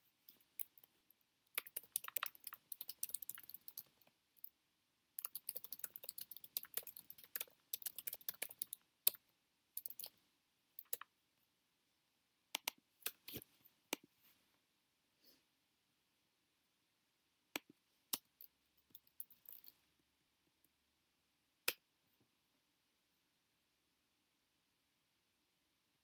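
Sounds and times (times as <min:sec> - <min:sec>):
typing on computer keyboard: 0:01.5 - 0:04.5, 0:05.2 - 0:09.2, 0:09.8 - 0:10.2, 0:10.8 - 0:11.1, 0:18.2 - 0:19.7.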